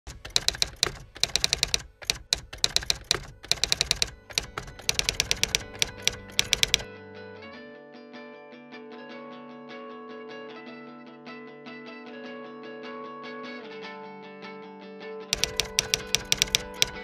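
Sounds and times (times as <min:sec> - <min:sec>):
typewriter keys clacking: 0:00.0 - 0:06.8, 0:15.4 - 0:17.0.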